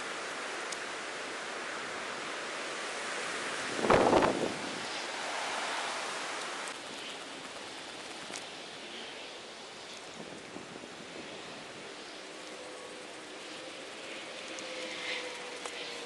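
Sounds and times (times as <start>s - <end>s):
gust or rustle: 0.0s - 16.0s
wind on microphone: 3.4s - 6.3s.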